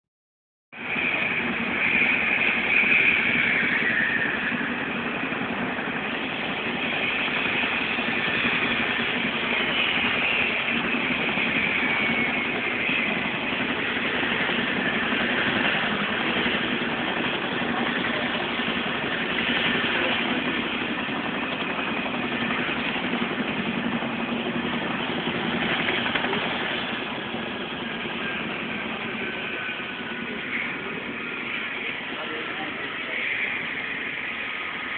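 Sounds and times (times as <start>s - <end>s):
helicopter engine and rotors: 0.7s - 34.9s
high turbine whine: 0.8s - 34.9s.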